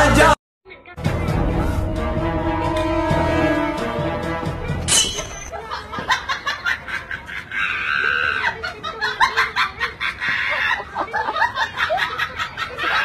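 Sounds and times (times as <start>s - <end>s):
people laughing and snickering: 5.5s - 13.0s.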